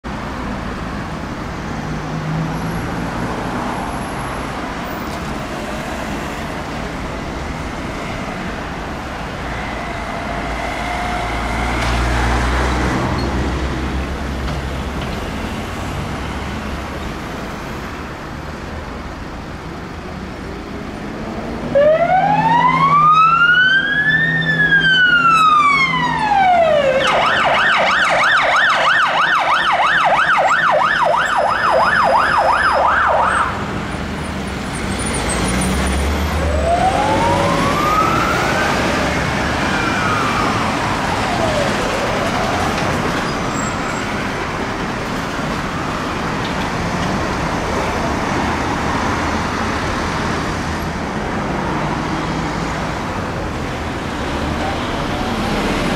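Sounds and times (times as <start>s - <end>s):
road traffic passing: 0.0s - 55.9s
fire engine siren wailing and yelping: 21.6s - 33.7s, 35.1s - 46.5s.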